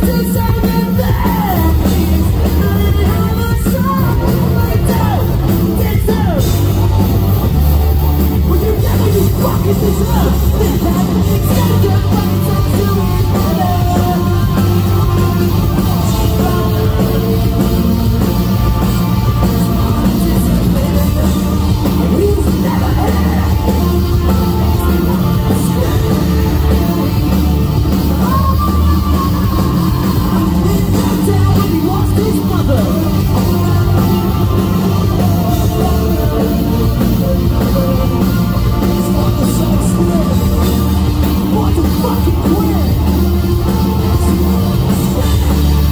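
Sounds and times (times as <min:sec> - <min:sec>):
bass guitar: 0:00.0 - 0:45.9
drum kit: 0:00.0 - 0:45.9
electric guitars: 0:00.0 - 0:45.9.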